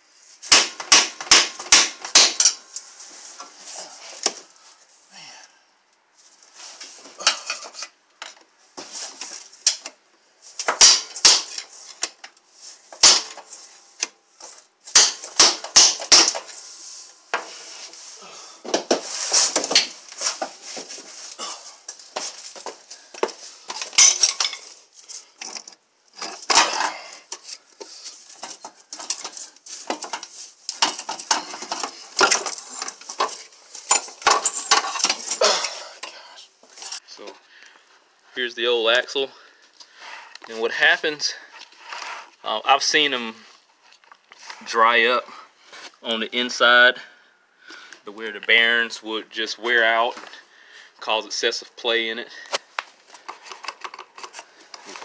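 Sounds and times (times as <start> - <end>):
metal knocking and clanking: 30.8 - 35.4.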